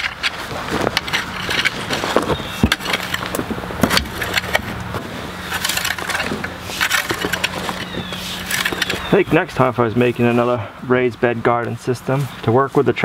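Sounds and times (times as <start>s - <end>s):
garden fork scraping soil: 0.0s - 9.2s
steady low hum: 0.0s - 13.0s.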